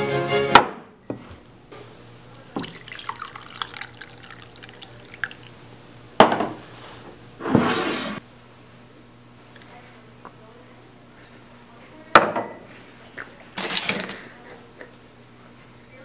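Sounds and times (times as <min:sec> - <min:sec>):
liquid pouring into a mug: 0:02.4 - 0:05.6
small drips and splashes: 0:02.5 - 0:05.6.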